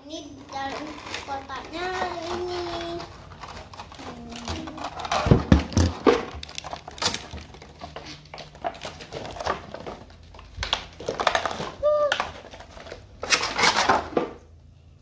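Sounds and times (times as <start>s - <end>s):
hard plastic knocking and clicking: 4.4s - 6.6s.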